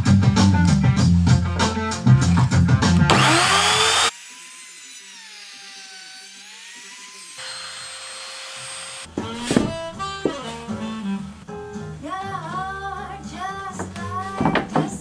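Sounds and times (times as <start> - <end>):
router cutting into wood: 3.0 - 10.3
router motor whining: 3.1 - 10.2.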